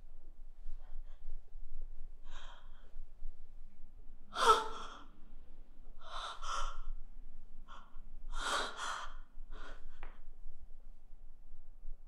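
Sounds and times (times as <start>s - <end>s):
woman breathing: 2.2s - 3.3s, 4.3s - 7.0s, 7.6s - 10.2s
woman gasping: 4.3s - 5.1s, 8.3s - 9.8s.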